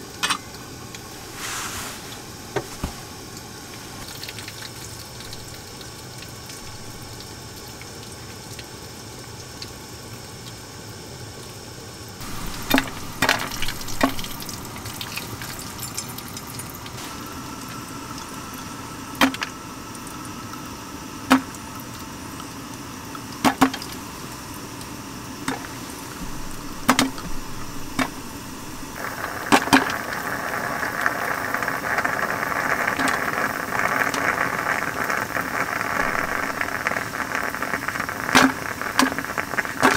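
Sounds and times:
gas burner hiss: 0.0s - 4.2s, 12.2s - 39.9s
sputtering gurgle of steam: 0.0s - 10.1s, 12.2s - 39.9s
coffee running into a cup: 2.0s - 8.3s, 12.2s - 20.7s, 21.3s - 39.9s
sharp spits and pops: 25.5s - 39.9s.

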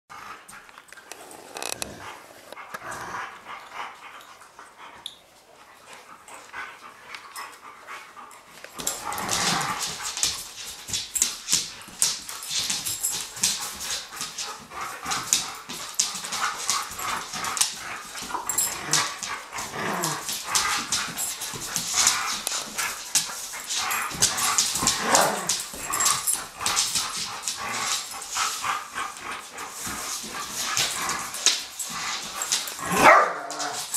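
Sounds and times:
dogs growling: 1.0s - 4.0s, 8.7s - 10.4s, 14.6s - 33.9s
claws scrabbling on hard floor: 8.7s - 33.9s
dogs barking: 32.8s - 33.9s.

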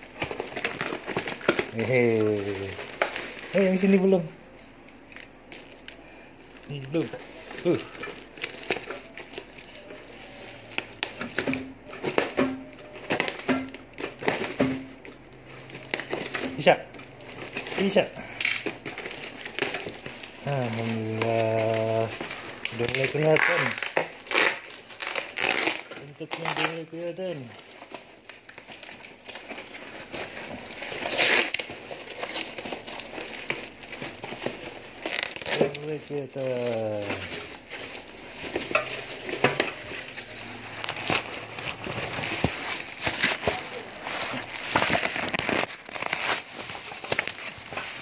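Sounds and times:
tape and cardboard tearing: 17.4s - 27.2s, 28.7s - 48.0s.

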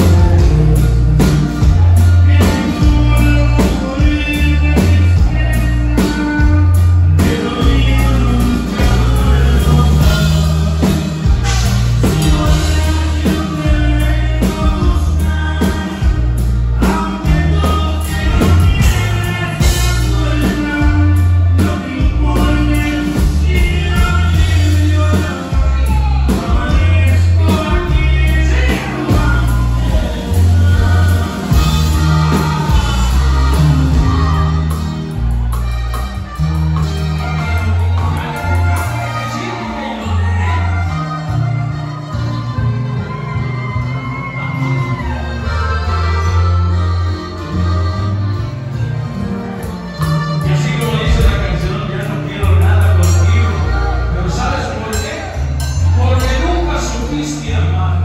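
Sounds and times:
person singing lead vocal: 0.0s - 34.8s, 50.4s - 58.0s
accordion: 0.0s - 58.0s
live band playing: 0.0s - 58.0s.

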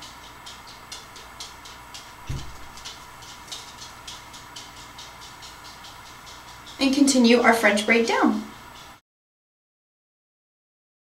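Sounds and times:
hair rustling while braiding: 0.0s - 9.0s
dull low bump: 2.2s - 2.8s.

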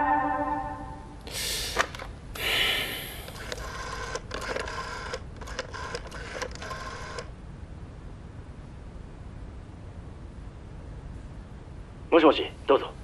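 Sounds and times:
telephone mechanical clicking: 3.2s - 7.3s.

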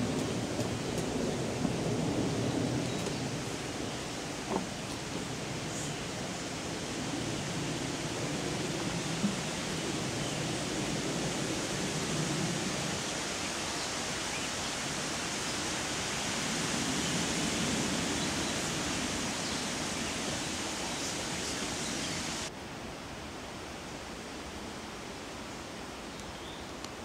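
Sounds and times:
rushing outdoor background noise: 0.0s - 27.0s.

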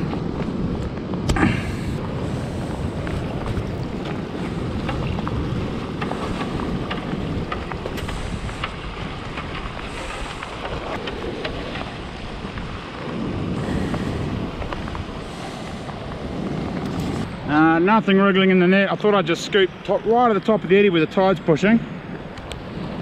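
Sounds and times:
river washing over gravel: 0.0s - 21.6s
wind buffeting microphone: 0.0s - 23.0s
small scattered clicks: 3.0s - 12.8s, 22.1s - 22.6s.

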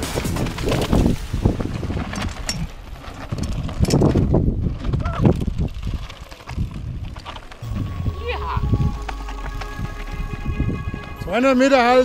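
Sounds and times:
mountain bike rattling on dirt trail: 0.0s - 8.4s
wind buffeting microphone: 0.0s - 11.4s
short wavering tone: 7.6s - 12.0s.

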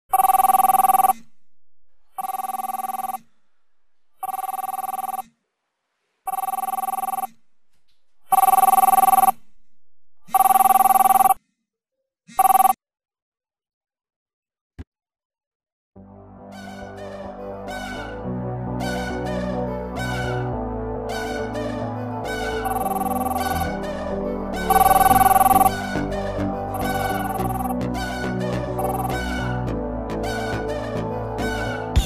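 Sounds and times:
smartphone ringing: 0.1s - 1.2s, 2.2s - 3.2s, 4.2s - 5.2s, 6.3s - 7.4s, 8.3s - 9.4s, 10.3s - 11.4s, 12.4s - 12.8s, 22.6s - 23.6s, 24.7s - 25.8s, 26.7s - 27.7s, 28.8s - 29.1s.

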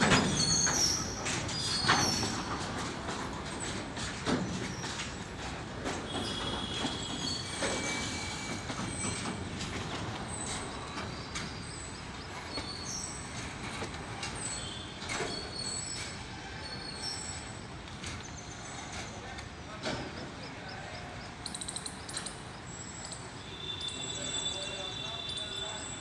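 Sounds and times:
clicks of wheels on rails: 0.0s - 26.0s
train wheels rumbling on rails: 0.0s - 26.0s
high-pitched wheel squeals: 0.2s - 2.5s, 6.1s - 17.6s, 22.7s - 26.0s.

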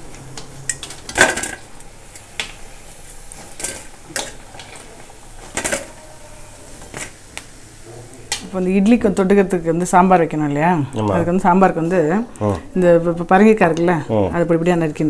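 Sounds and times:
food deep-frying in oil: 0.0s - 10.7s.

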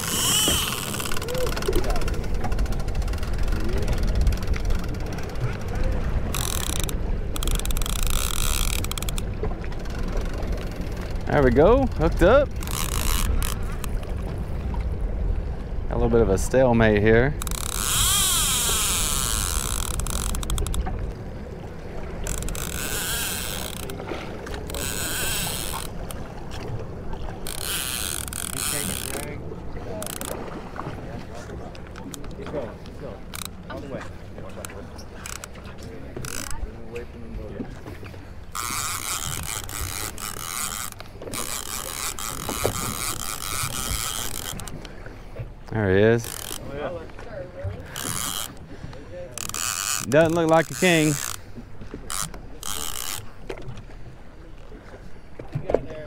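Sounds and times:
fishing reel clicking and whirring: 0.0s - 14.4s, 16.4s - 21.2s, 22.1s - 26.4s, 27.3s - 30.5s, 31.7s - 37.0s, 38.4s - 45.0s, 45.7s - 46.9s, 47.8s - 53.9s
wind rumble on microphone: 0.0s - 33.0s.

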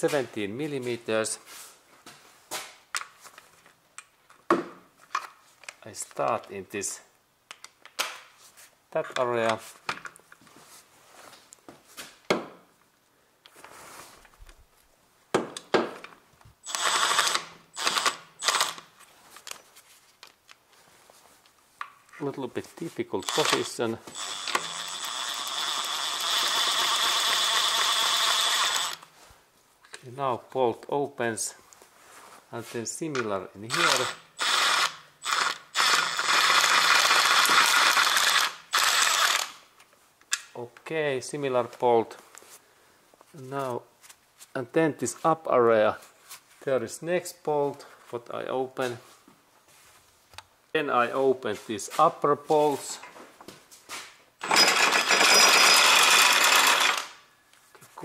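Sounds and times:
cordless power tool bursts: 16.6s - 18.8s, 23.2s - 29.1s, 33.7s - 39.6s, 54.4s - 57.2s
impact wrench running: 16.6s - 18.8s, 23.2s - 29.0s, 33.7s - 39.6s, 54.4s - 57.2s.

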